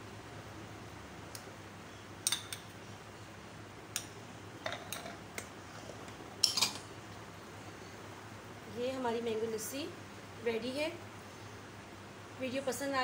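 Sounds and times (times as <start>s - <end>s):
metal spoon clinking glassware: 6.4s - 6.8s.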